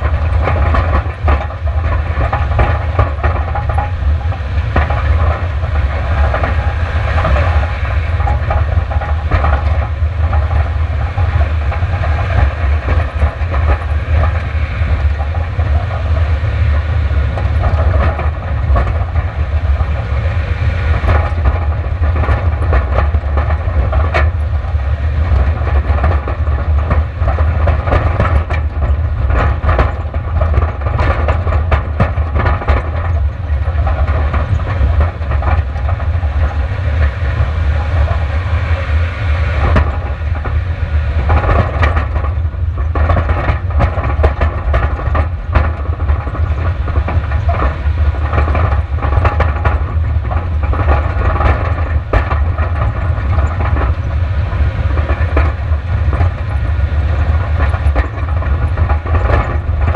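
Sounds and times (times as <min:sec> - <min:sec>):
deep rumble of car and wind: 0:00.0 - 0:59.9
gravel ticking and clattering: 0:00.0 - 0:59.9.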